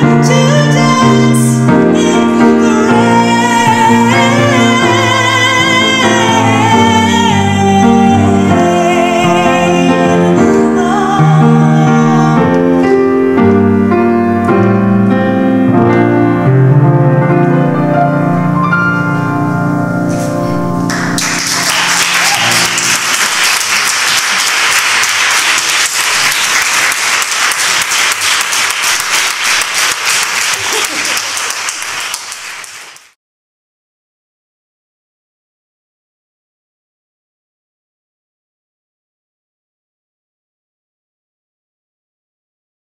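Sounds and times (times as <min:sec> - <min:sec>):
woman singing with vibrato: 0:00.0 - 0:12.8
grand piano: 0:00.0 - 0:33.2
audience applause: 0:20.9 - 0:33.2.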